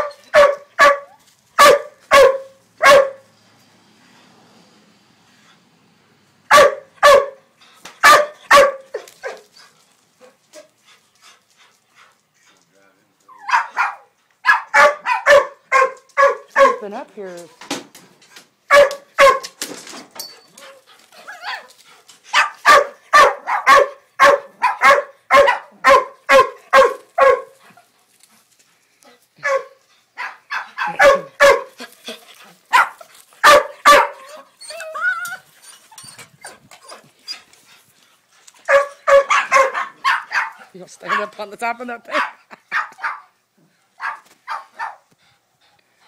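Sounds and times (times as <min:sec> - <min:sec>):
dog barking: 0:00.0 - 0:03.3, 0:06.5 - 0:07.4, 0:08.0 - 0:09.4, 0:13.4 - 0:16.9, 0:18.7 - 0:19.6, 0:22.3 - 0:27.6, 0:29.4 - 0:31.8, 0:32.7 - 0:34.3, 0:38.7 - 0:41.4, 0:42.1 - 0:43.4, 0:44.0 - 0:45.0.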